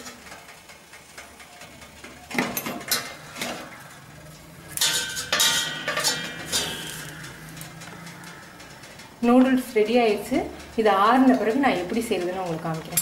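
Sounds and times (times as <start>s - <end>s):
metal utensils knocking on steamer pot: 4.7s - 8.1s.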